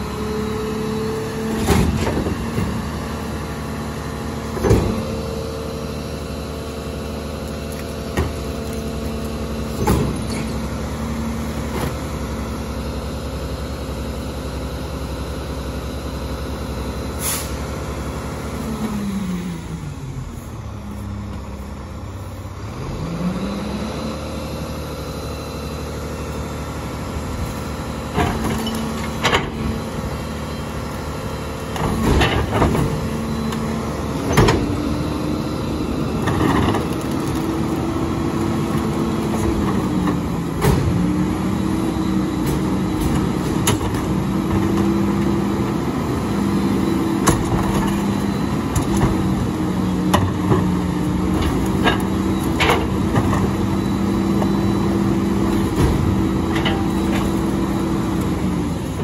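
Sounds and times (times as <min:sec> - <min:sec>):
garbage truck engine revving: 0:00.0 - 0:59.0
packer compacting trash: 0:00.1 - 0:12.5, 0:27.0 - 0:59.0
knocks and bangs in hopper: 0:01.4 - 0:03.0, 0:04.5 - 0:05.2, 0:09.7 - 0:10.6, 0:31.7 - 0:33.3, 0:38.6 - 0:41.3, 0:55.4 - 0:57.5.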